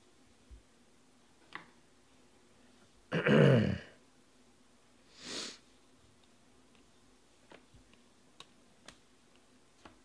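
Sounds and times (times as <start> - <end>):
person sniffing: 5.1 - 5.7.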